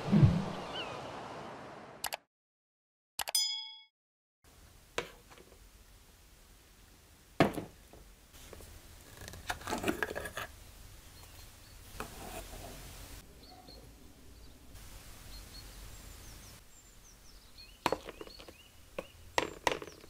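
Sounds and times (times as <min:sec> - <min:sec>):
glass jar knocking on wood: 0:17.8 - 0:20.0.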